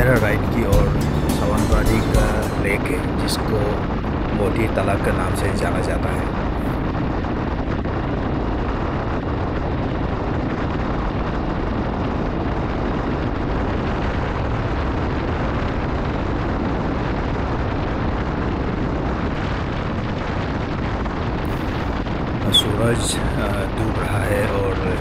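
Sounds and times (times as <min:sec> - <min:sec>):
wind rushing: 0:00.0 - 0:11.4, 0:19.1 - 0:25.0.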